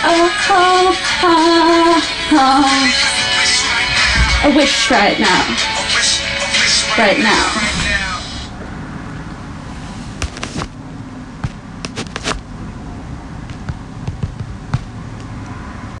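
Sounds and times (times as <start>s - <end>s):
low background noise: 0.0s - 16.0s
sharp clicks and knocks: 13.4s - 15.3s.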